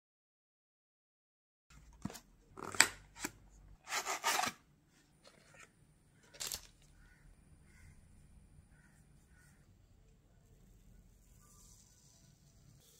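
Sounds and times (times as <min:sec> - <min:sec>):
plastic packaging crinkling: 0:06.3 - 0:06.8.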